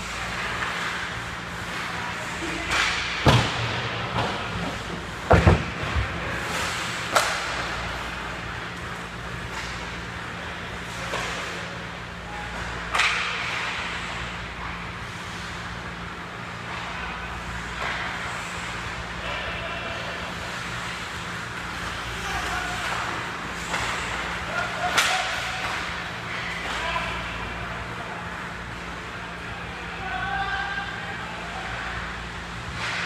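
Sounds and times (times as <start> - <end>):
hockey sticks and puck clacking: 0.0 - 15.6, 16.6 - 27.3.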